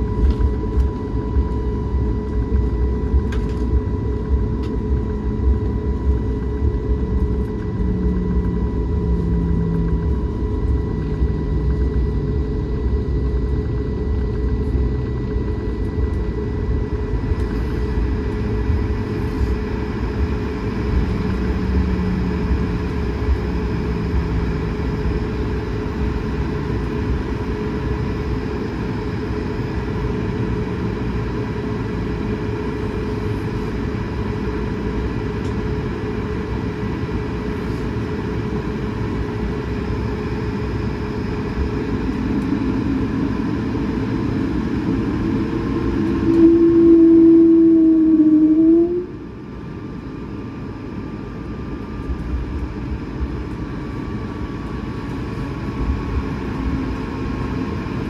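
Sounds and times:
jet engines idling drone: 0.0 - 58.0
low rumble of rolling airframe: 0.0 - 58.0
thin high whine: 41.0 - 49.7.

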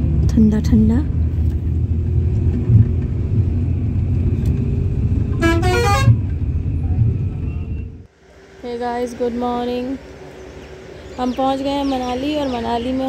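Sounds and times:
bus engine and road rumble: 0.0 - 13.0
horn toot rising in pitch: 5.3 - 6.3.

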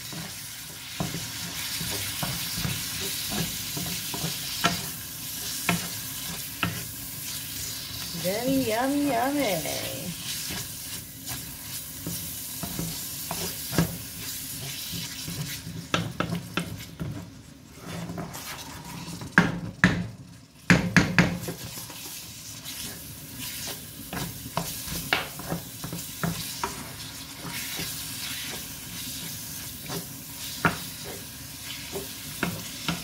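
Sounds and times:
wooden spoon scraping a pan: 0.0 - 19.4, 21.4 - 33.0
meat sizzling in a frying pan: 0.0 - 33.0
spoon knocking on pan: 15.9 - 16.7, 20.7 - 21.6.

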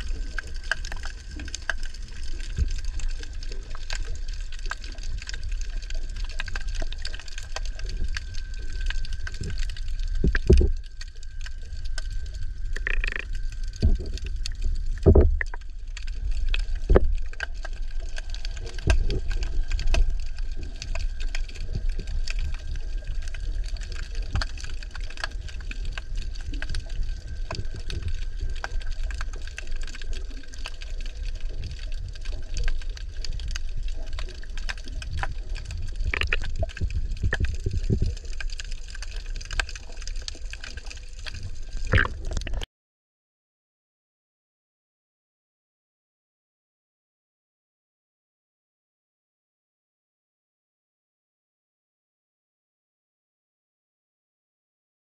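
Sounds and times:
underwater rumble of moving water: 0.0 - 42.6
sharp knocks and clicks: 15.0 - 15.6.

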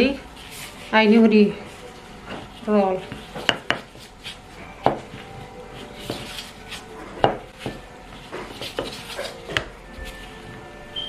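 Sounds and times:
rolling pin rolling dough: 0.0 - 11.0
rolling pin knocking board: 3.1 - 4.0, 7.2 - 9.7.

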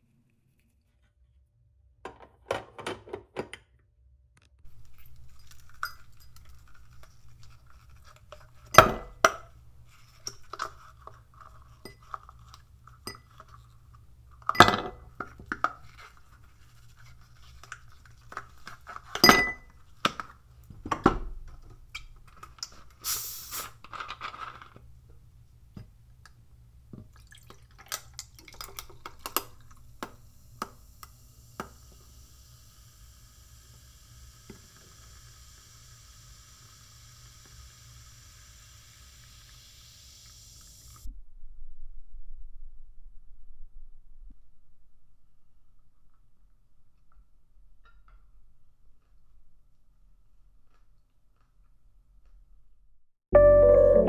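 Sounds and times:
ice clinking in a glass: 4.8 - 6.7, 19.2 - 19.7
short hiss: 23.0 - 23.8.

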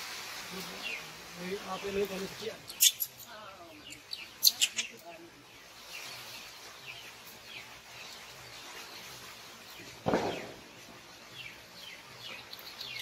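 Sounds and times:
falling bird chirps: 1.8 - 13.0
dull thump: 10.0 - 10.7.

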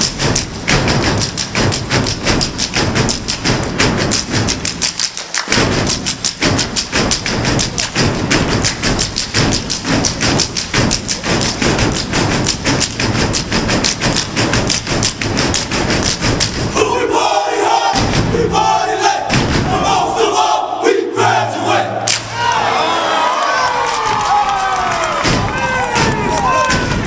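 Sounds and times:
stomping and clapping: 0.0 - 16.8, 22.0 - 27.0
people shouting and cheering: 16.7 - 27.0.

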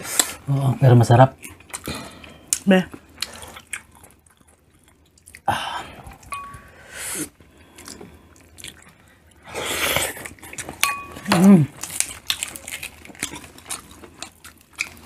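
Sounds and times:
wet chewing and biting: 9.9 - 15.0.

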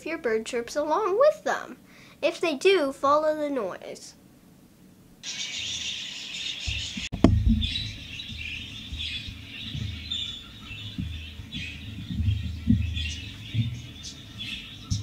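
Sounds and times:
recorded bird chirping from phone: 5.2 - 15.0
handling thuds and knock: 6.7 - 10.0, 10.9 - 13.9.

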